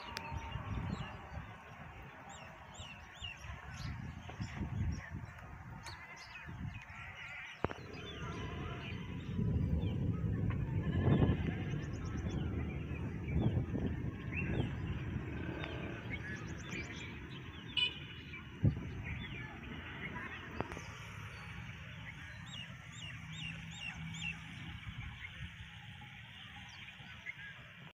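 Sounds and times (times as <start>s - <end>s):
birds chirping: 0.0s - 27.8s
low rumble: 7.6s - 23.3s.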